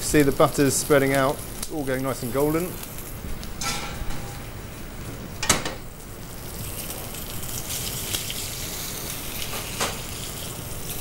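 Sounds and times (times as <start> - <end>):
butter sizzling in frying pan: 0.0 - 3.6, 5.8 - 11.0.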